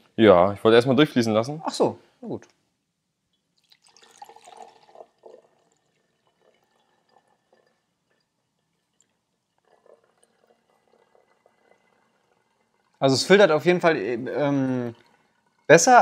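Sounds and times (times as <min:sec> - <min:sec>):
liquid trickling and dripping: 0:03.2 - 0:16.0
liquid splashing: 0:03.3 - 0:16.0.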